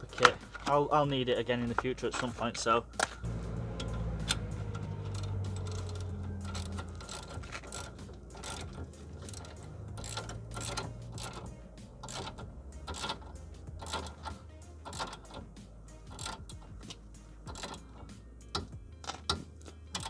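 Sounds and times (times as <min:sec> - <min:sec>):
low steady hum: 0:03.2 - 0:18.9
hand ratchet clicking: 0:03.8 - 0:20.0.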